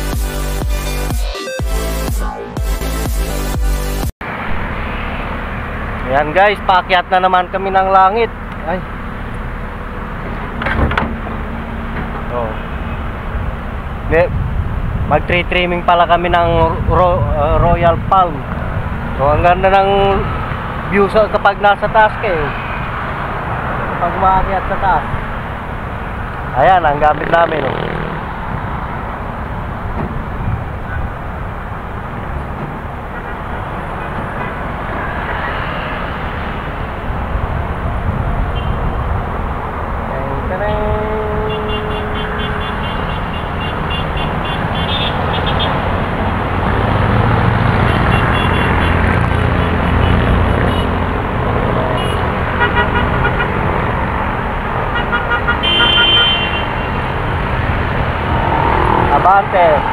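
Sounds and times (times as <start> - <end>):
road traffic rumbling: 1.8 - 59.9
wind buffeting microphone: 13.0 - 20.9, 36.3 - 40.1.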